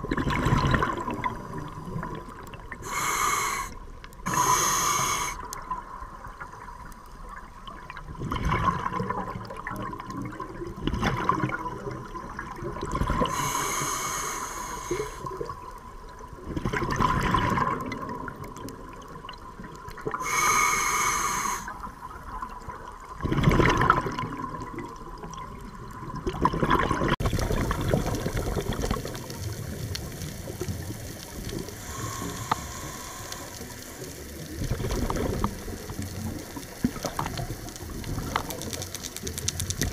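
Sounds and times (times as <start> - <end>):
underwater wash: 0.0 - 39.9
diver breathing through regulator: 2.8 - 5.5, 13.2 - 15.3, 20.2 - 21.8, 31.8 - 34.2.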